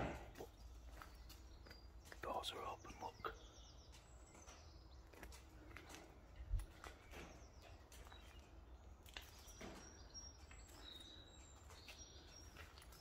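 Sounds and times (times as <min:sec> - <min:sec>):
faint high bird chirps: 0:00.3 - 0:05.4, 0:06.7 - 0:13.0.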